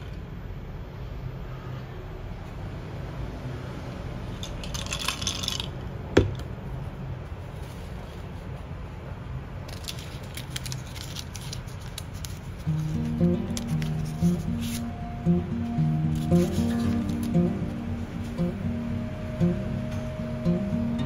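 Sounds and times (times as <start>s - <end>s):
paper liner crinkling: 9.6s - 14.9s, 16.1s - 17.4s.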